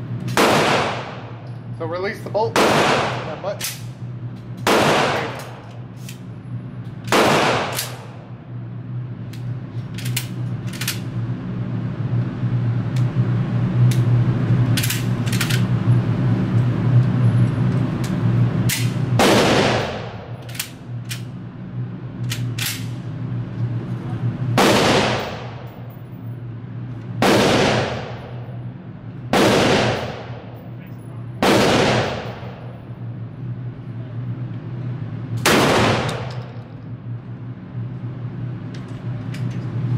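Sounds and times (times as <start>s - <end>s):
steady low hum: 0.0s - 39.9s
echoing gunshots: 0.4s - 1.4s, 2.5s - 3.6s, 4.6s - 5.7s, 7.1s - 8.3s, 19.1s - 20.4s, 24.6s - 25.9s, 27.2s - 28.5s, 29.3s - 30.6s, 31.4s - 32.7s, 35.4s - 36.6s.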